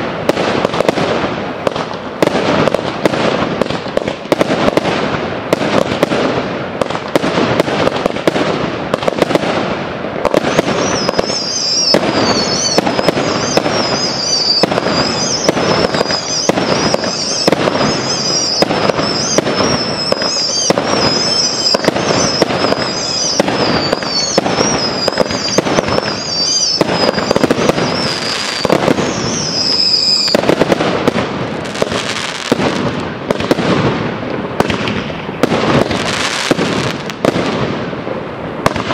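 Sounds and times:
firework bursts and crackling: 0.0 - 38.9
high warbling whistle: 10.7 - 30.4.

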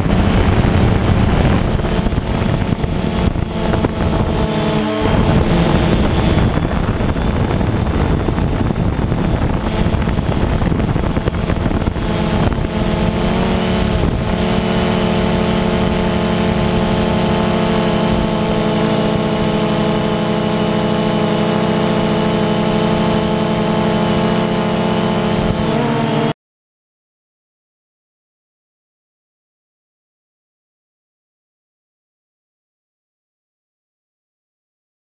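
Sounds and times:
wind noise on microphone: 0.0 - 26.2
drone propellers buzzing: 0.0 - 26.4.

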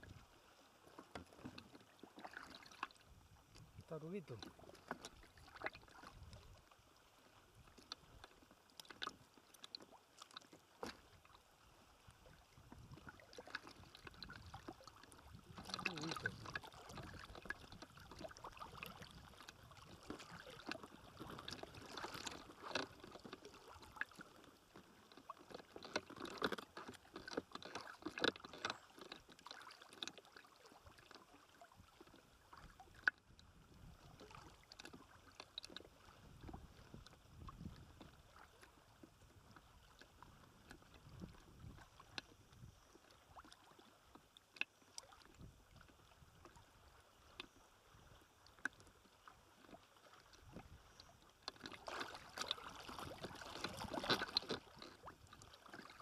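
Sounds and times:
water lapping: 0.0 - 56.0.

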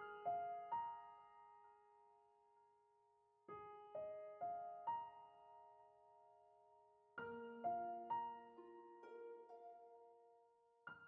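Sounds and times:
soft piano notes: 3.5 - 11.0.

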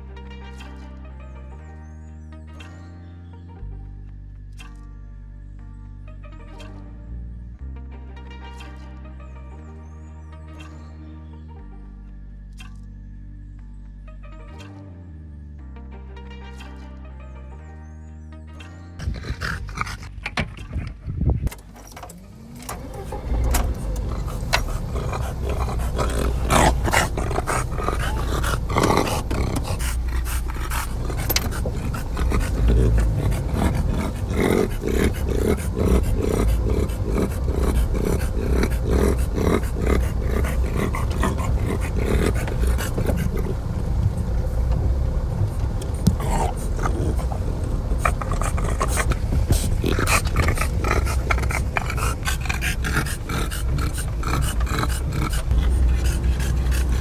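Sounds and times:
dog panting: 19.0 - 20.9, 22.9 - 43.7, 45.9 - 57.0
car engine starting and idling: 19.0 - 57.0.

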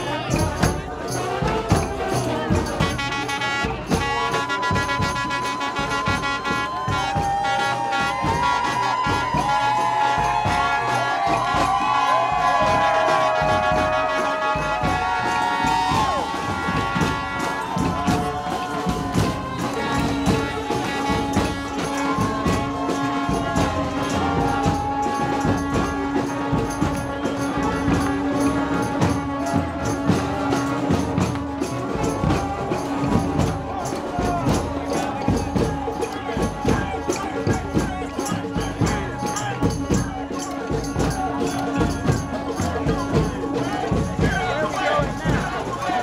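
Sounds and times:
brass band playing: 0.0 - 46.0
rattling percussion: 0.0 - 46.0.

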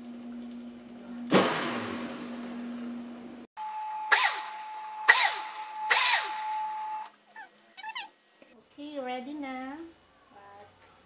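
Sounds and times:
blender motor running: 3.6 - 7.1.

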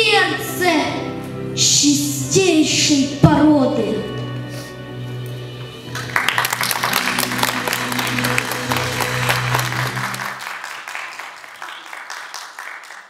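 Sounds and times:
soft background music: 0.0 - 10.4
audience applauding: 5.9 - 13.0.

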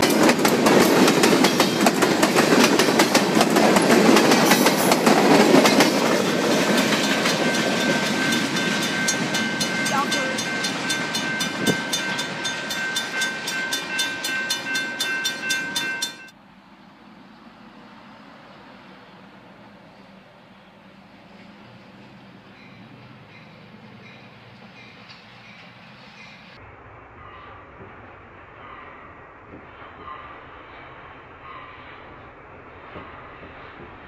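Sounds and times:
train wheels clacking on rails: 0.0 - 16.3
crossing bell ringing: 5.9 - 16.4.

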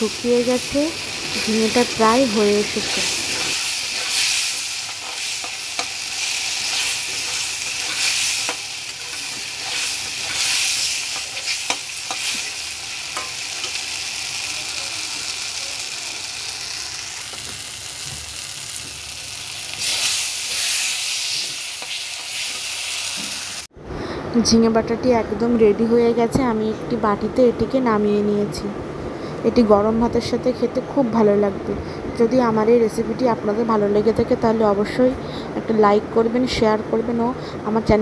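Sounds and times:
paste sizzling in hot oil: 0.0 - 23.7
spatula scraping a metal pan: 6.6 - 12.5.

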